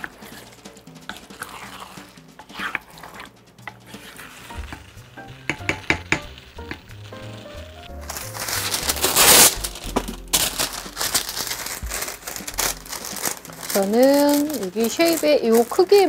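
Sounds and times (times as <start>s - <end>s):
spoon stirring thick stew: 0.0s - 6.9s
background music: 0.0s - 16.0s
spoon knocking against pot: 5.5s - 6.3s.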